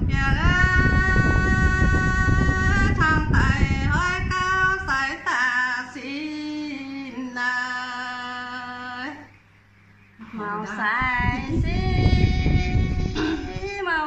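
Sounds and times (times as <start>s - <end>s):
low rumbling noise: 0.0s - 5.3s, 11.0s - 14.0s
woman singing folk song: 0.0s - 9.3s, 10.3s - 14.0s.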